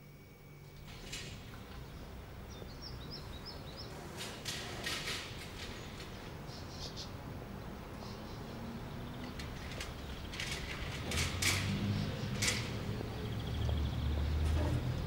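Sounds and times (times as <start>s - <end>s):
steady low street background: 0.0s - 15.0s
small birds chirping: 1.6s - 4.0s, 11.8s - 15.0s.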